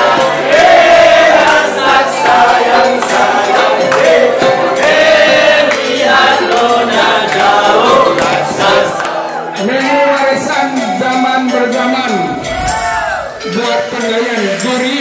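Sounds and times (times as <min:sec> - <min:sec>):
group of voices singing: 0:00.0 - 0:10.2.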